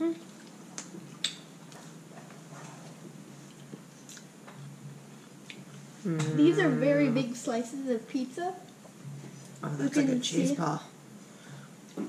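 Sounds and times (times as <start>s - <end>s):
people chewing: 0.1s - 6.8s.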